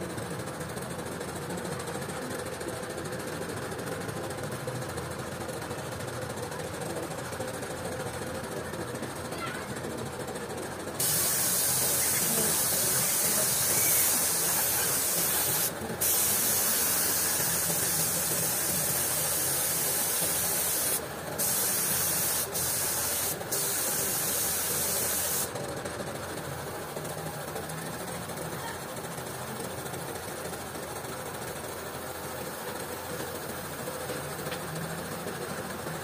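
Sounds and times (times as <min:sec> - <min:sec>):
motor running: 0:11.0 - 0:25.5
paint spray gun hissing: 0:11.0 - 0:25.5.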